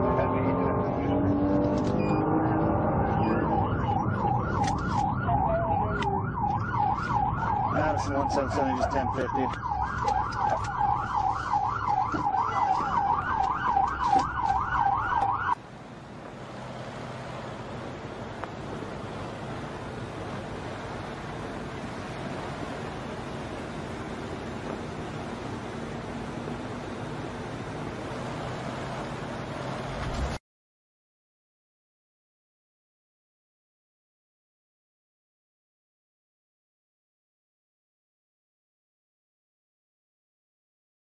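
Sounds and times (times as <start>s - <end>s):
police siren yelping: 0.0s - 15.6s
road and engine noise: 0.0s - 30.4s.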